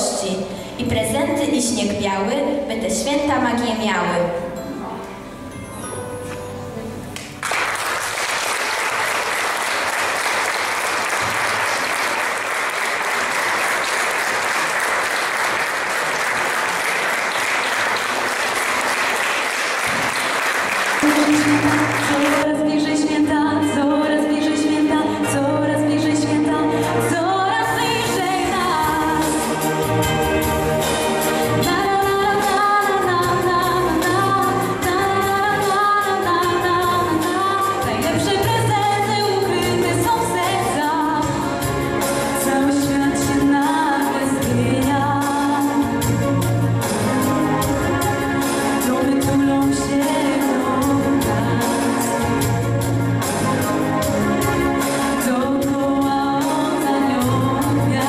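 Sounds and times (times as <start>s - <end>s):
audience applauding: 7.2s - 22.4s
music with singing: 20.8s - 58.0s.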